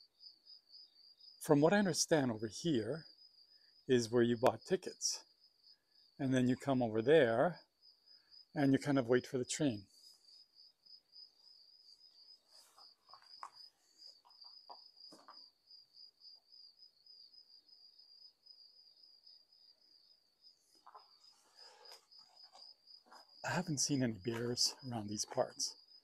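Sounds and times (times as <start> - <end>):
cricket trilling: 0.0 - 1.4, 9.8 - 26.0
soft clicks and crunches: 12.5 - 15.4, 20.7 - 23.4, 24.3 - 25.6.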